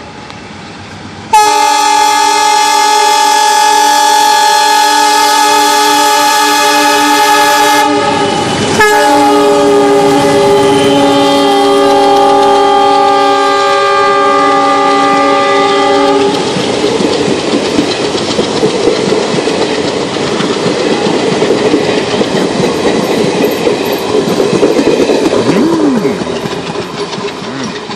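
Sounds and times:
locomotive horn chord: 1.3s - 16.4s
train wheels clicking over rail joints: 8.2s - 27.9s.

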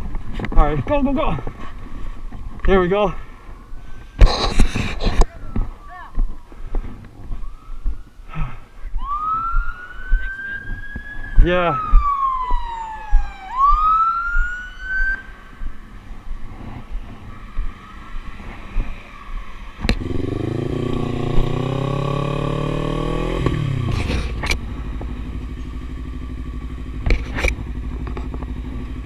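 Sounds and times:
police siren wailing: 7.2s - 8.3s, 8.9s - 16.0s, 17.2s - 20.7s
motorcycle engine pulling away: 19.9s - 29.0s.

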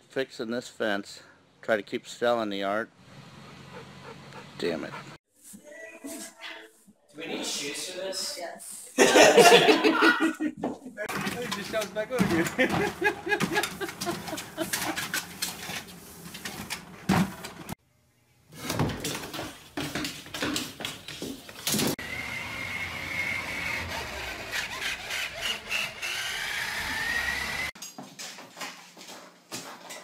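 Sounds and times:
toy car electric motor whine: 22.0s - 27.8s.

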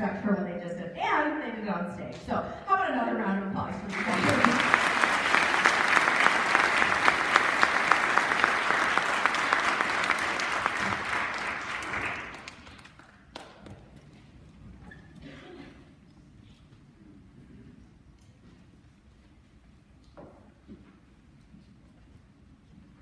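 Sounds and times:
audience applauding: 3.9s - 13.5s.

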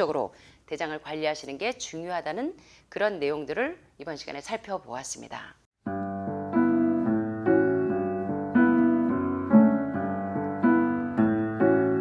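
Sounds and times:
soft piano chords: 5.8s - 12.0s.

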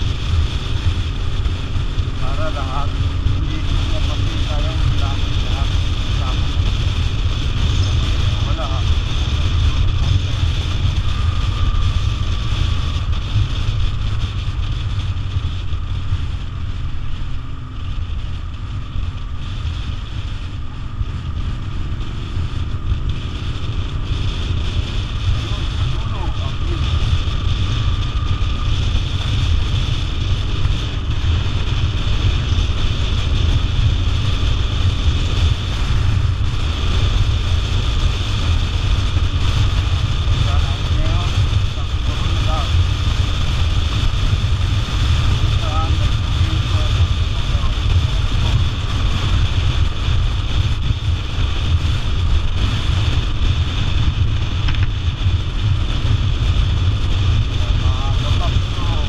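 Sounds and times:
motorcycle engine low rumble: 0.0s - 59.0s
wind rushing over microphone: 0.0s - 59.0s.

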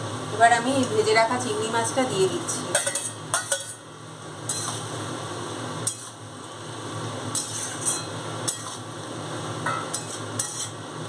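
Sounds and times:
sizzling hiss from the pan: 0.0s - 11.0s
spatula stirring in a wok: 4.5s - 5.0s, 5.8s - 6.3s, 7.3s - 9.1s, 9.7s - 11.0s.

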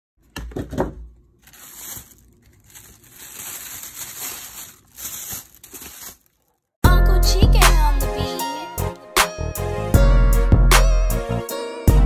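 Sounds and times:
soft rustling and crinkling: 1.4s - 6.7s.

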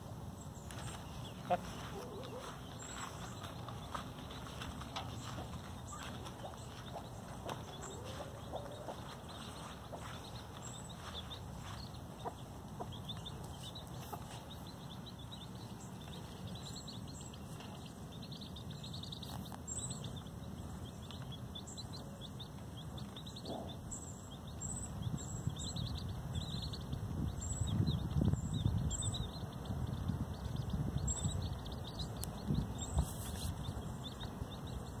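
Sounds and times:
chickens clucking: 0.0s - 16.6s, 22.4s - 23.9s.

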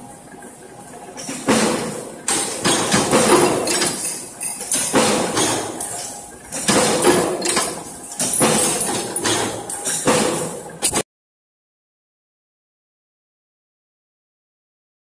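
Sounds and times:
punch press heavy metallic strikes: 4.7s - 11.0s.

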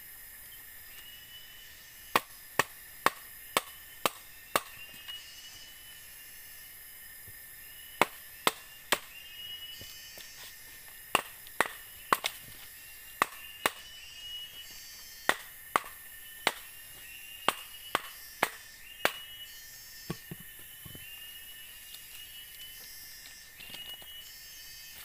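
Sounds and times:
machete striking bamboo: 2.1s - 4.9s, 8.0s - 9.2s, 11.1s - 12.5s, 13.2s - 14.0s, 15.2s - 16.7s, 17.4s - 19.4s, 20.1s - 20.7s.

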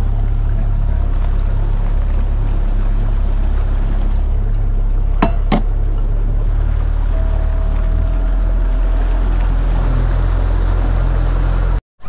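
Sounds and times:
boat low rumble: 0.0s - 11.8s
water noise: 0.0s - 11.8s
sharp knocks: 5.2s - 5.8s.

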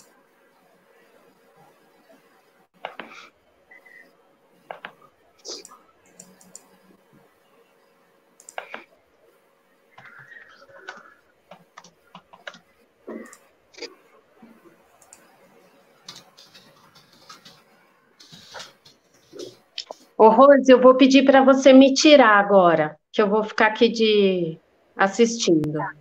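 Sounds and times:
typing on computer keyboard: 10.8s - 12.6s.

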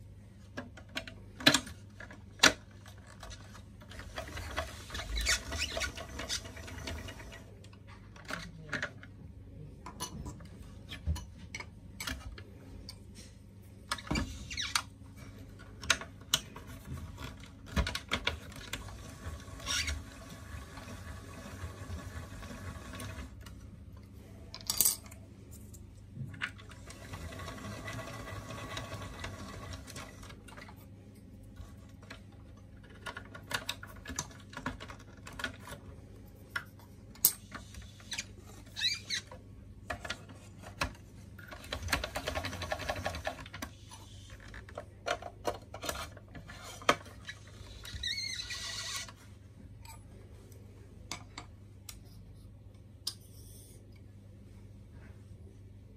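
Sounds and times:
plastic parts clicking and knocking: 0.5s - 9.2s, 15.6s - 23.6s, 31.7s - 36.0s, 39.2s - 47.9s.

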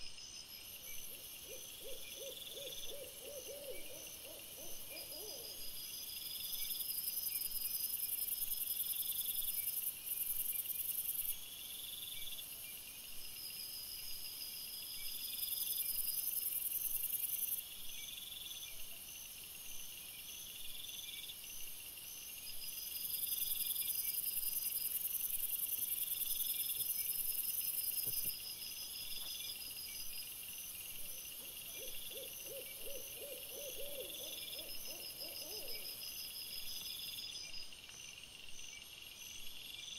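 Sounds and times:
crickets chirring: 13.3s - 39.9s.

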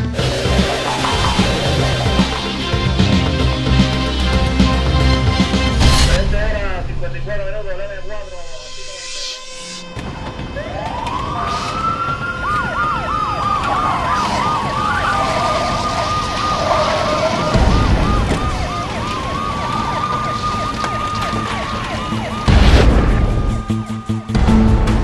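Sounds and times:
yelping sirens: 0.0s - 5.3s, 9.9s - 24.3s
wailing siren: 0.0s - 5.7s, 8.7s - 24.4s
heavy low rumble: 0.0s - 10.6s.

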